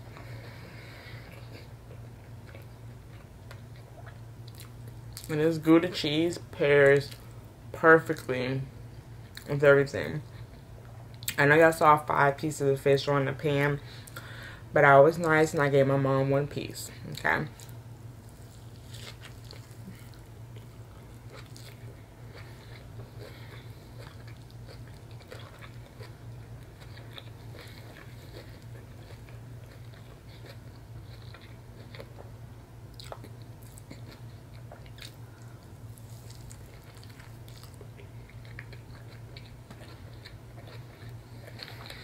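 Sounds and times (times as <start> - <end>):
person chewing: 0.1 - 5.3, 17.6 - 42.0.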